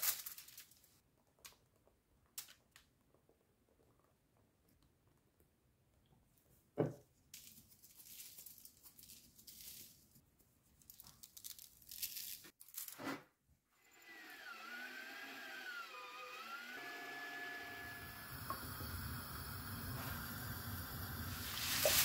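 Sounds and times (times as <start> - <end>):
aluminium foil tray crinkling: 0.0 - 1.5, 7.4 - 10.2, 10.8 - 13.0.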